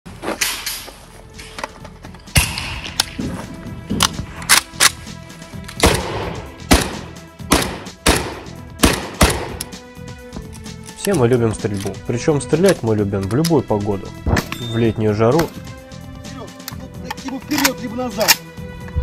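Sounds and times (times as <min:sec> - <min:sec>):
background music with steady tones: 0:00.1 - 0:19.0
rifle firing single shots: 0:02.3 - 0:03.2, 0:05.7 - 0:09.8.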